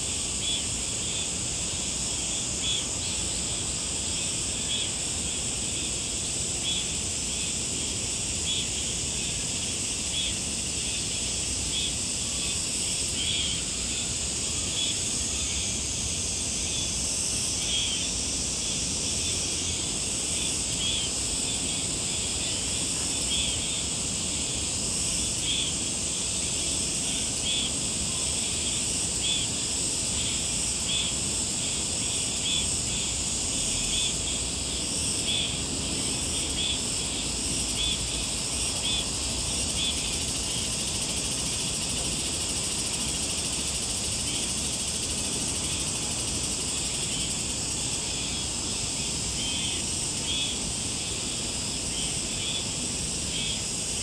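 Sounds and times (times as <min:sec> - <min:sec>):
insect chirp: 0:00.0 - 0:54.0
insects buzzing: 0:00.0 - 0:54.0.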